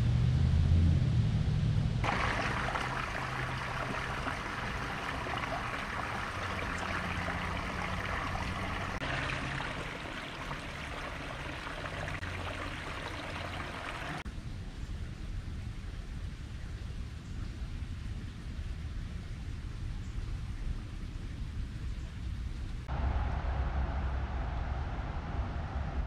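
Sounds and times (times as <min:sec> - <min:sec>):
wind rumble on microphone: 0:00.0 - 0:26.0
creek water trickling: 0:02.0 - 0:14.2.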